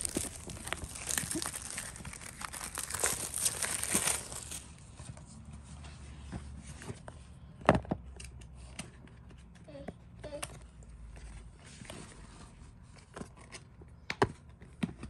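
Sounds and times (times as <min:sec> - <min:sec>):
plastic wrapping crinkling and tearing: 0:00.0 - 0:05.0.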